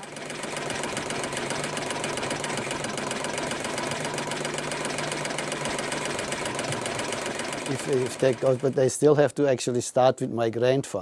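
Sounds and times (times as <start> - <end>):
embroidery machine clattering: 0.0 - 9.0.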